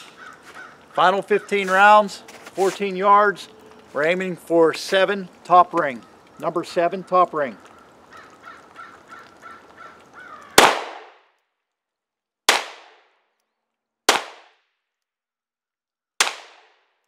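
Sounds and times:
pistol shots with echo: 10.6 - 11.2, 12.5 - 13.0, 14.1 - 14.6, 16.2 - 16.8.

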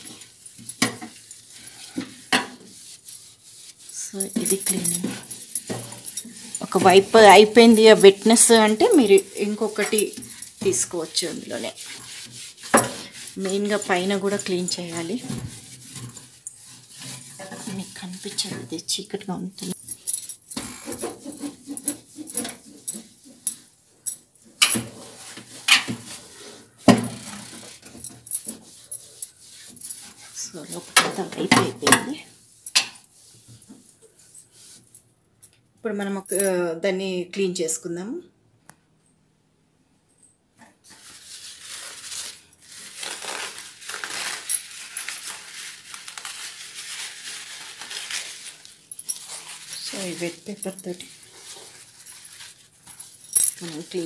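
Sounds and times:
wet wipe rubbing: 0.0 - 18.5, 40.9 - 54.0
paper towel rustling and crinkling: 0.0 - 19.8, 40.8 - 54.0
bangles clinking: 3.9 - 11.6, 19.6 - 24.8, 48.5 - 54.0.

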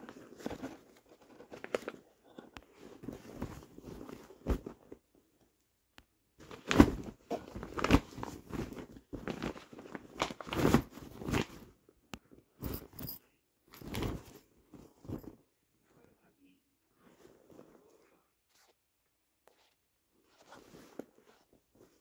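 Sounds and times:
fabric bags rustling and crinkling: 0.0 - 5.0, 6.4 - 11.8, 12.6 - 15.5.

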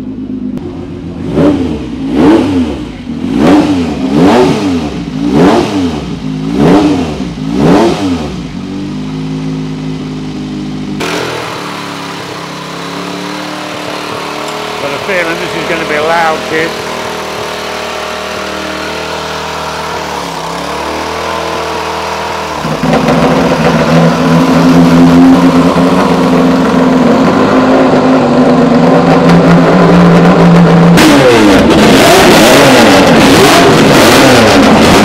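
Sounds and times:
racing motorcycle engine revving: 0.6 - 35.0
small petrol engine running: 11.0 - 27.0.

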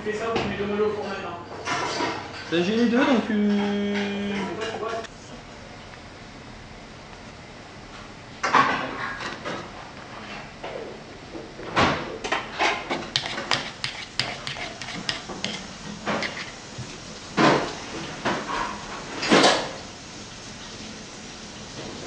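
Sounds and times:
utensils and dishes clinking: 1.0 - 5.1.

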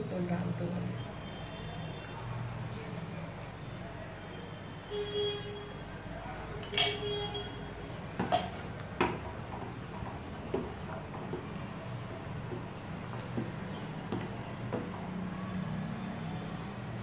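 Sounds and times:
spoon clinking in steel pot: 6.6 - 7.5, 8.2 - 8.8.

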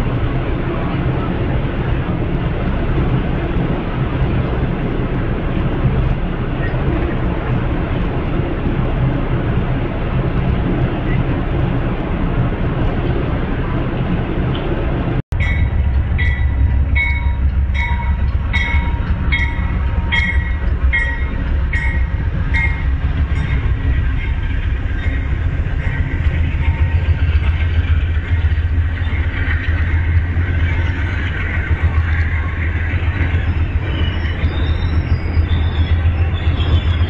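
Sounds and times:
diesel engine low rumble: 0.0 - 37.0
rolling train cars: 0.0 - 37.0
locomotive bell ringing: 15.3 - 37.0.

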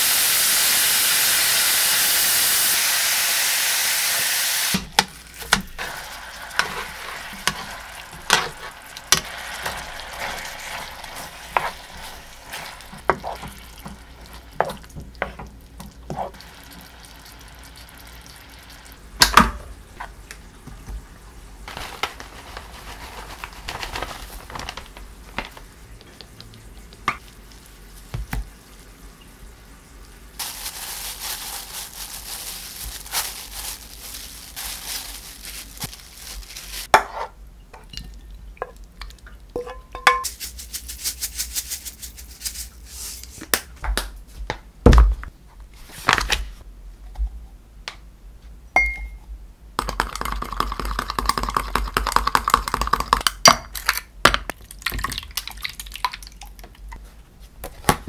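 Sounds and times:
chicken sizzling in a frying pan: 0.0 - 4.8, 5.5 - 14.9, 27.4 - 36.9
rice rustling in a glass bowl: 21.7 - 24.9, 30.4 - 36.9, 40.2 - 43.2.

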